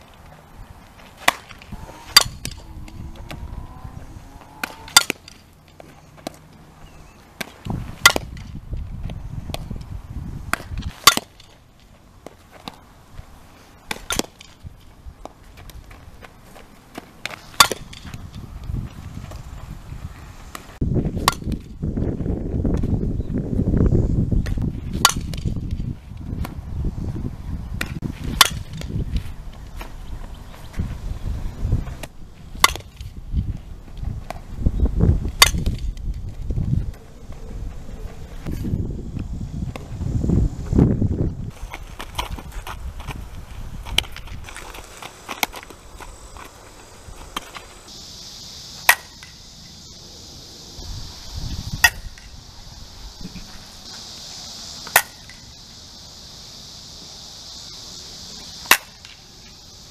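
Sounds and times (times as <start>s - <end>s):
softball bat cracks: 1.0s - 3.4s, 4.6s - 6.5s, 7.4s - 8.6s, 10.5s - 12.8s, 13.9s - 16.0s, 16.6s - 18.4s, 20.5s - 21.7s, 24.4s - 25.8s, 27.8s - 29.0s, 32.0s - 33.2s, 35.3s - 36.1s, 48.8s - 49.4s, 51.8s - 52.3s, 54.8s - 55.5s, 58.6s - 59.2s.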